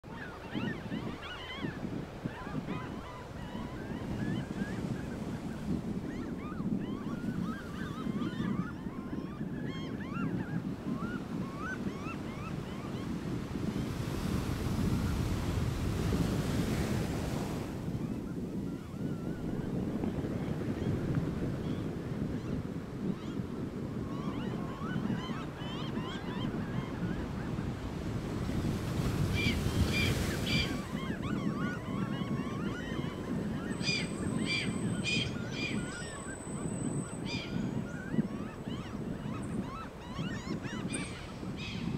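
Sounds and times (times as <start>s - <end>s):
wind on microphone: 0.0s - 41.9s
gulls calling: 24.0s - 41.9s.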